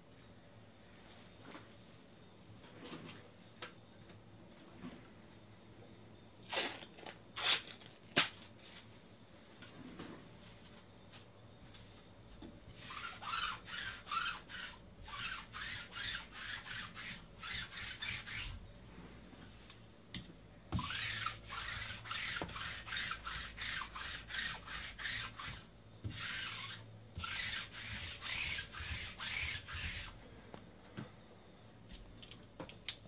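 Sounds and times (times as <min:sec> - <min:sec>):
rapid rubbing or scraping strokes: 0:12.8 - 0:18.6, 0:20.8 - 0:30.2.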